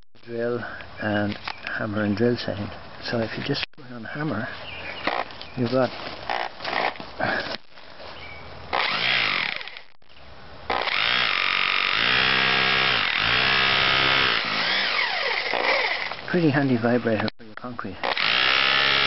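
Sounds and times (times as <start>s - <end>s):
hammer drill hammering: 8.7s - 9.9s, 10.7s - 16.2s, 18.0s - 19.0s.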